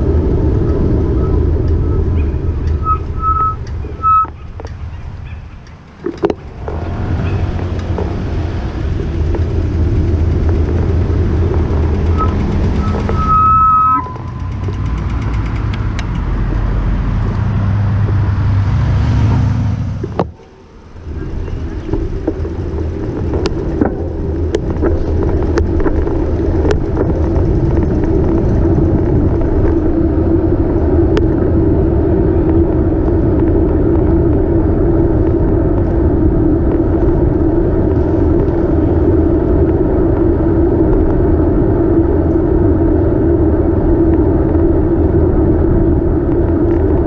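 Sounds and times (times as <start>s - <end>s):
wind and road noise rumble: 0.0s - 47.0s
sharp rattling clicks: 14.1s - 16.4s.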